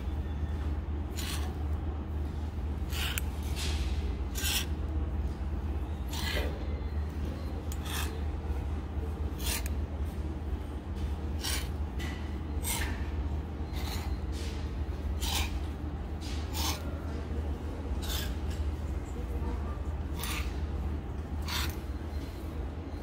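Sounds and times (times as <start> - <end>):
steady low hum: 0.0 - 23.0
hangers scraping along metal rail: 1.1 - 1.8, 2.8 - 8.4, 9.2 - 9.8, 11.0 - 17.2, 17.9 - 19.2, 19.9 - 22.5.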